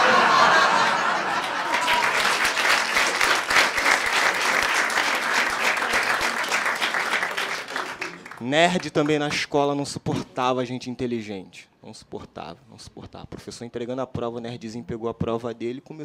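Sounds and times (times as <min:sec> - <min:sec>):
audience applauding: 0:00.0 - 0:09.4.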